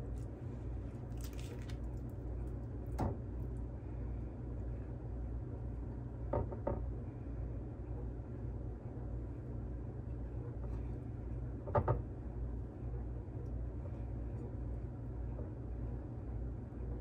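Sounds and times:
hands rustling in breading: 0.0 - 2.7
steady low hum: 0.0 - 17.0.

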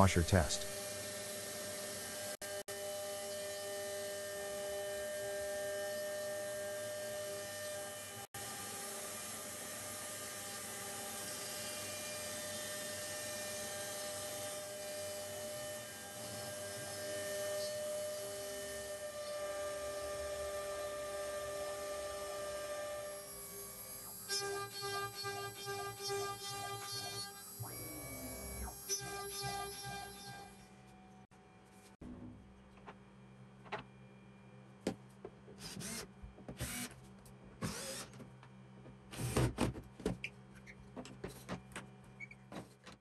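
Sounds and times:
router spindle whining: 0.7 - 30.7, 35.7 - 36.0, 36.6 - 36.9, 37.6 - 38.2.

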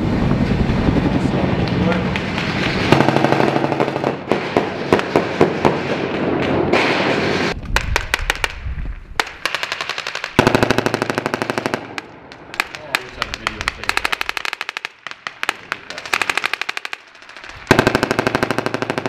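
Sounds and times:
steady rumble: 0.0 - 4.4
automatic rifle fire: 2.8 - 7.2, 9.2 - 19.0.

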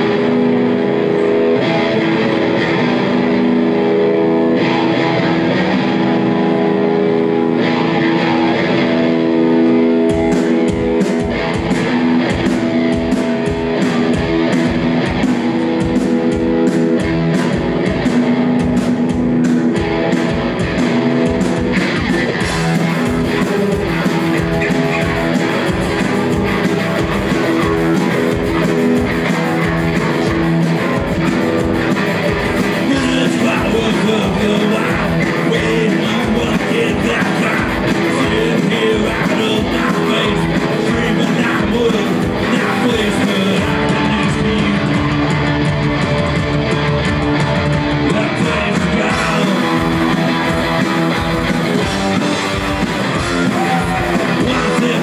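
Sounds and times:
electric guitar chords: 0.0 - 55.0
punk rock band playing live: 0.0 - 55.0.

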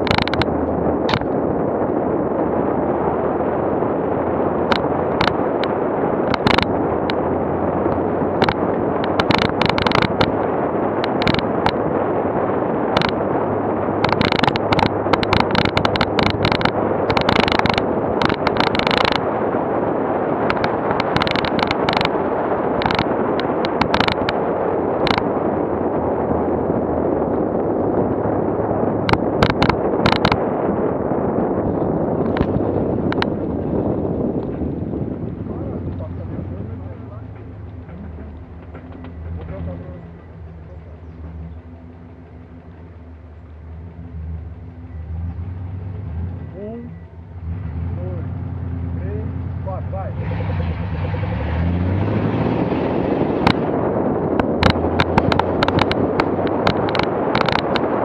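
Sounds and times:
sharp knocks and clatters: 0.0 - 1.4, 4.7 - 7.2, 7.9 - 11.8, 14.0 - 19.2, 20.4 - 22.2, 22.8 - 24.4, 29.1 - 30.4, 31.8 - 34.8, 35.4 - 43.0, 53.2 - 57.9
off-road vehicle rumble: 0.0 - 58.0.

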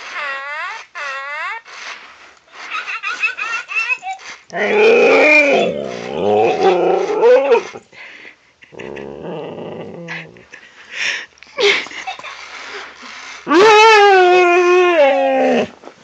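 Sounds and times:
dog growling vocalizations: 4.5 - 7.8, 8.7 - 10.5.

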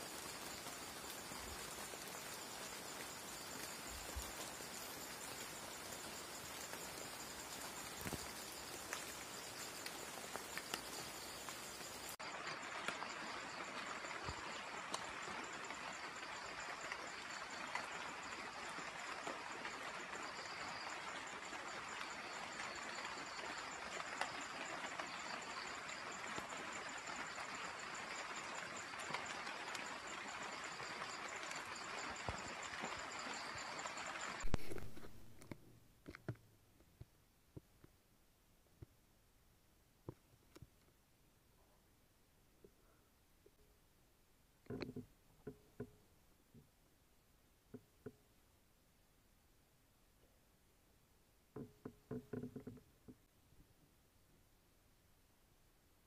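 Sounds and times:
even hiss: 0.0 - 13.1
high-pitched insect trill: 0.0 - 35.3
pulsing insect band: 0.0 - 35.5.

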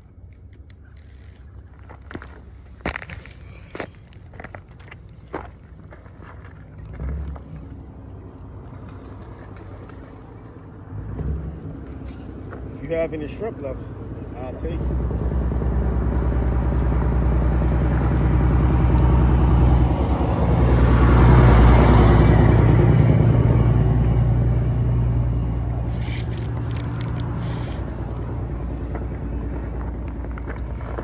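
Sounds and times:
motor engine passing: 6.7 - 31.0.

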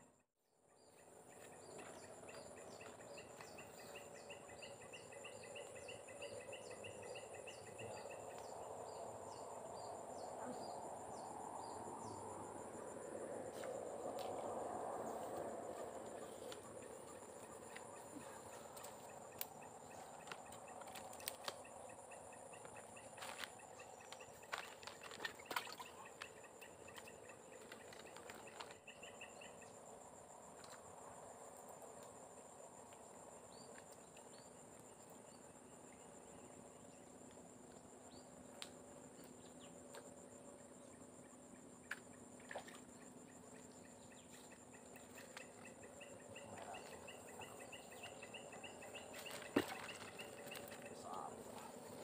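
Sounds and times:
faint outdoor background: 0.0 - 52.0
faint pulsing chirp: 37.9 - 52.0.

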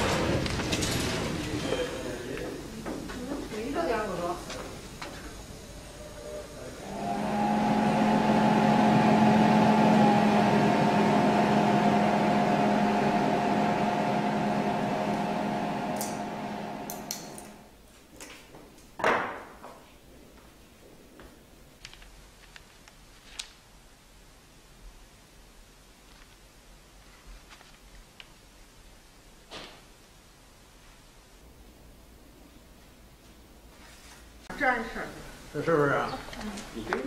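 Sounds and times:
kiln electrical hum and whine: 0.0 - 37.0
paper rustling: 21.8 - 23.6, 26.1 - 28.2.

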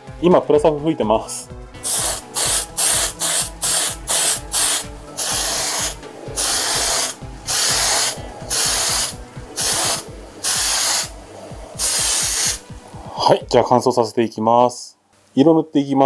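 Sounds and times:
aerosol spray can hissing: 1.8 - 13.2.

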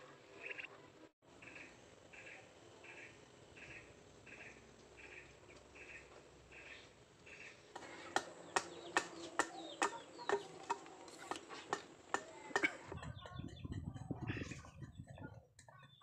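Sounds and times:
hammer striking chisel: 7.8 - 12.9.

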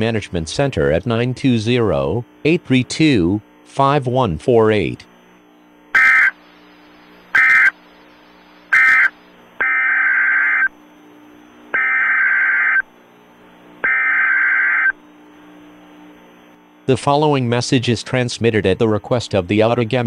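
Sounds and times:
digital data bursts: 6.0 - 6.4, 7.3 - 7.8, 8.7 - 10.7, 11.8 - 12.8, 13.8 - 15.0.

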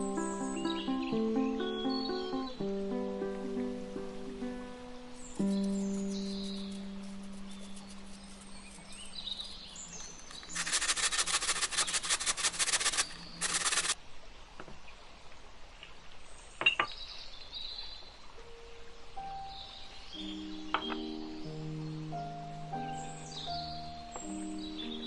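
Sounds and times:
faint bird chirps: 0.0 - 2.7, 5.0 - 14.0
potato grated on metal grater: 10.3 - 14.0.

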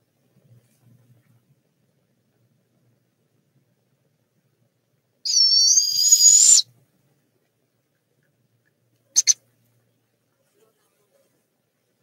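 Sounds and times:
owlet raspy hissing screech: 5.3 - 6.6.

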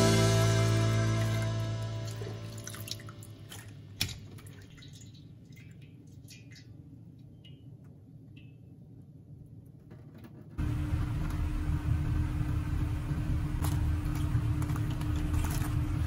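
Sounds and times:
water dripping into sink: 2.0 - 8.7.

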